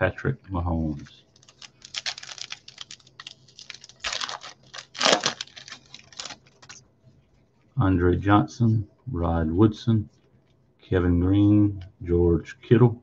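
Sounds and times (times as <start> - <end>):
cards rustling: 1.3 - 6.8.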